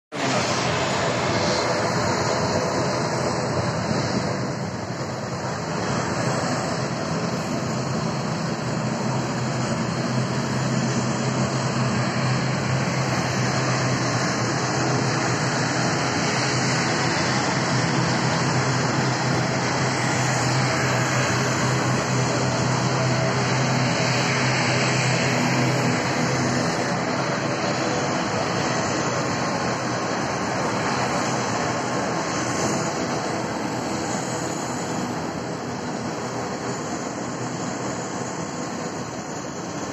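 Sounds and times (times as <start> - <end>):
turboprop engines droning: 0.1 - 39.9.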